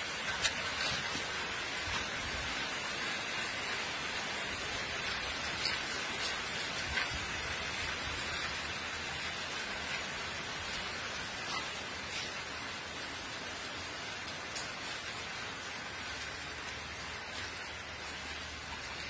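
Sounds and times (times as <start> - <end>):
rain on pavement and puddles: 0.0 - 19.0
faint drip ticks: 14.2 - 15.2.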